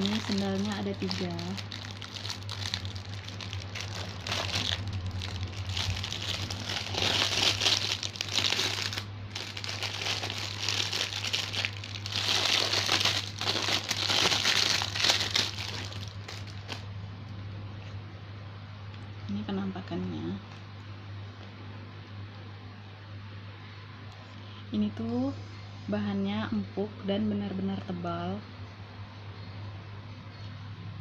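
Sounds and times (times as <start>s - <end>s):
plastic bag crinkling: 0.0s - 16.9s
low steady hum: 0.0s - 31.0s.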